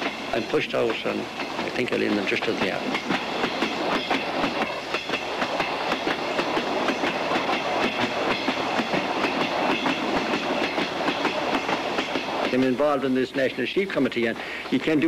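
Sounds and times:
train rumble inside carriage: 0.0 - 15.0
wheels clicking over rail joints: 0.0 - 15.0.

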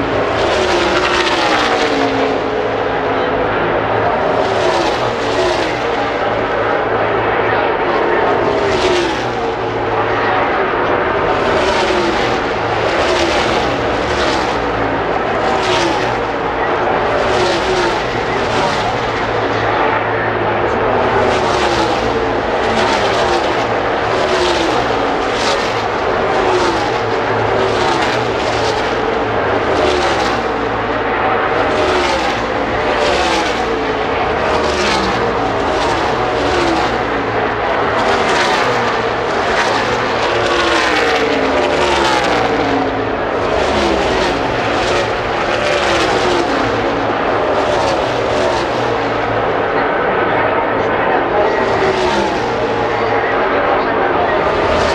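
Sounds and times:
drone of racing pack: 0.0 - 54.9
race cars passing at full speed: 0.0 - 54.9.

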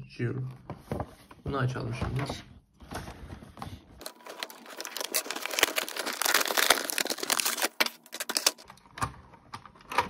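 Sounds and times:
plastic and cardboard crinkling: 2.8 - 8.8.

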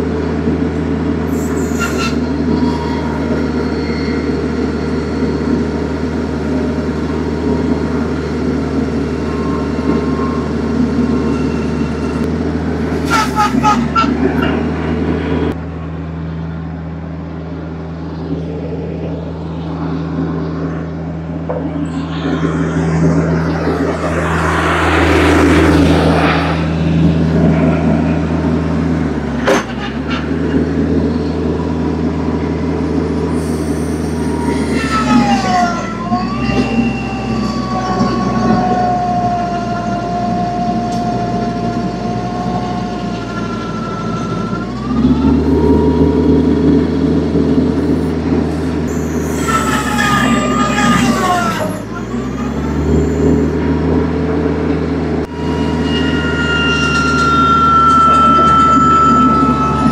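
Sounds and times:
tractor engine running: 0.0 - 55.8
high whine: 0.0 - 59.9
rough noisy surge: 1.3 - 39.1.

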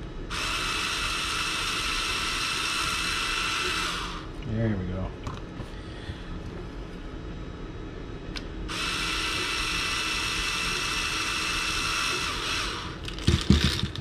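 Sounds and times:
cordless drill whining: 0.3 - 4.3, 8.7 - 13.8.

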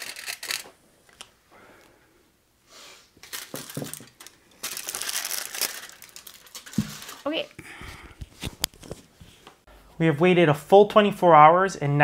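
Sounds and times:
aluminium foil crinkling: 0.0 - 0.7, 3.2 - 7.4.

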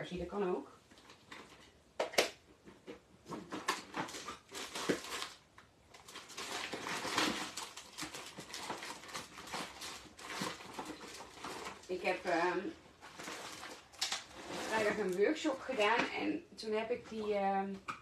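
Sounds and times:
rustling: 2.5 - 16.1
hands rummaging through supplies: 2.7 - 5.4, 6.0 - 16.2.

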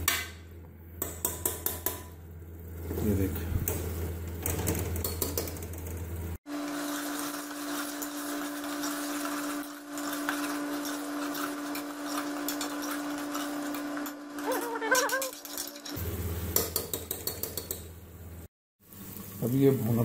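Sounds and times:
food frying: 2.3 - 20.0
metal ladle scraping pot: 6.7 - 16.0.

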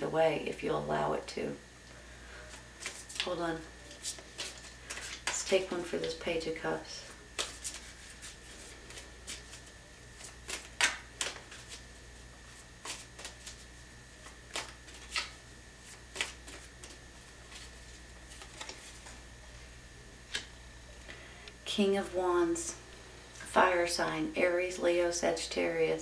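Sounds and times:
cards shuffling: 2.8 - 6.2, 7.3 - 19.2.

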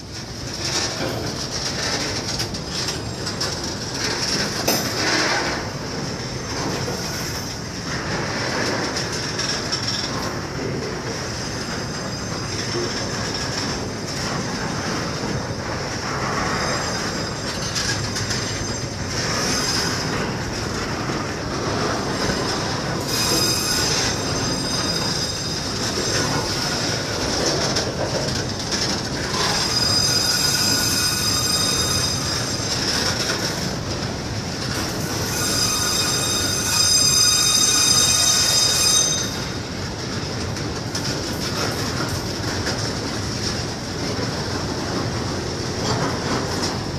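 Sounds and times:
train wheels rumbling on track: 0.0 - 46.9
high-pitched wheel squeal: 16.4 - 20.2, 23.0 - 26.7, 29.3 - 33.1, 35.0 - 39.6.

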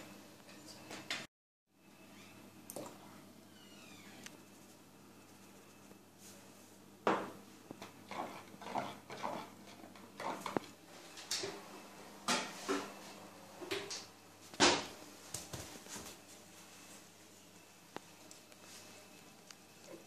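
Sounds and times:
kitchen clunks and knocks: 7.0 - 7.4, 14.6 - 15.0.

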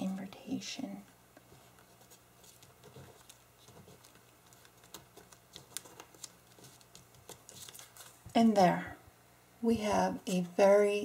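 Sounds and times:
paper taps and rustles: 1.4 - 8.4.

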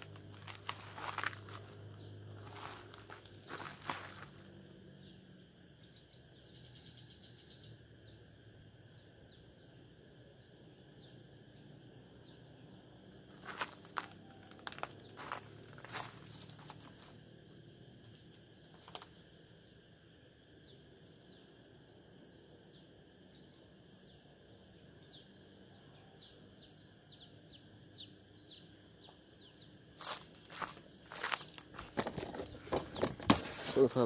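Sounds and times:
birds chirping: 0.0 - 17.6, 26.2 - 34.0
high insect drone: 0.0 - 34.0
loud rustling knocks: 31.8 - 33.8.

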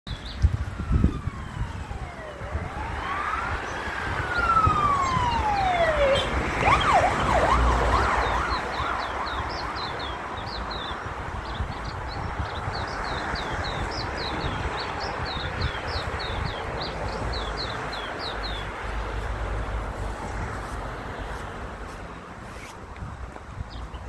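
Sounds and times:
emergency siren wailing and yelping: 0.6 - 11.0.

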